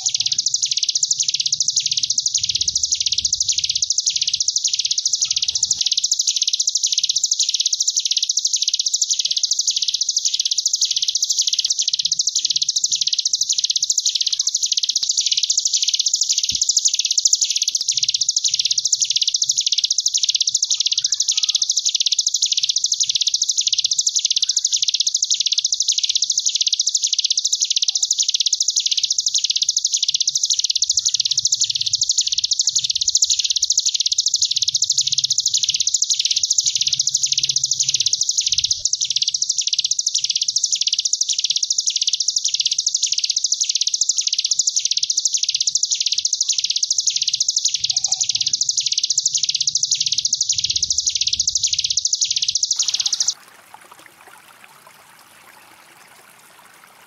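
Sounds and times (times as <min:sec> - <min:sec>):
bird buzzing trill: 0:24.3 - 0:53.4.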